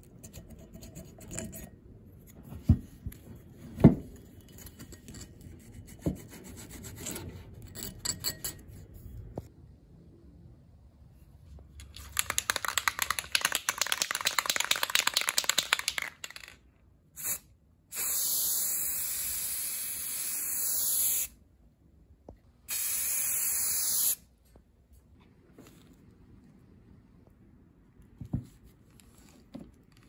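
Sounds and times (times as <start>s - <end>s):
spray can ball rattling: 11.8s - 16.6s
spray paint hissing: 17.2s - 21.4s, 22.7s - 24.2s.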